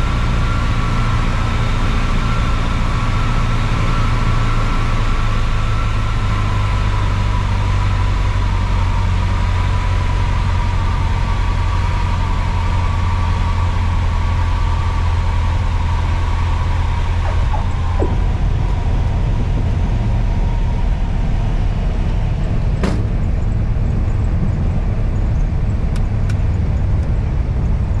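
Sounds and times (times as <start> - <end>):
thin steady whine: 0.0 - 26.9
airplane engine at low power: 0.0 - 28.0
airflow noise: 10.5 - 26.2.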